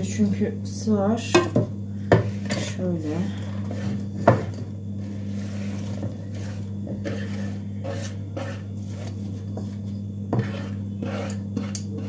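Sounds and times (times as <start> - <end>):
onions scraped off wooden board: 5.4 - 9.2, 10.3 - 12.0.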